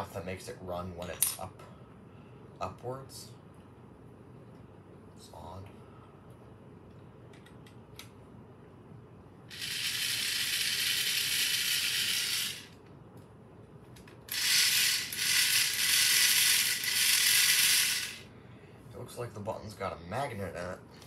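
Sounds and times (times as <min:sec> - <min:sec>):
toy motor and gears whirring: 0:09.5 - 0:12.8, 0:14.3 - 0:18.3.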